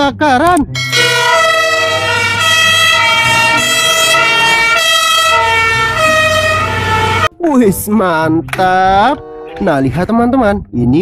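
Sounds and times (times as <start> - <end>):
fire engine two-tone siren: 0.9 - 7.3.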